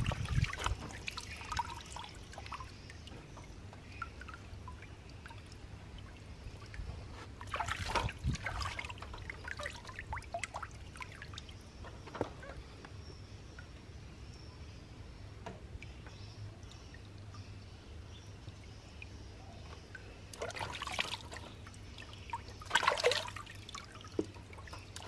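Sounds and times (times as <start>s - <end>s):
water dripping and trickling: 0.0s - 14.5s, 15.3s - 25.0s
splashing in paddling pool: 7.4s - 11.6s, 20.3s - 25.0s.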